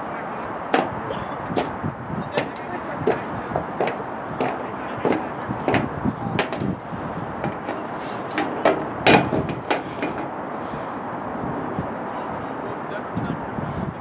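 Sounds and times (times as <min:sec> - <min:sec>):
outdoor rushing noise: 0:00.0 - 0:14.0
sharp knocks and taps: 0:00.7 - 0:01.8, 0:02.4 - 0:10.3.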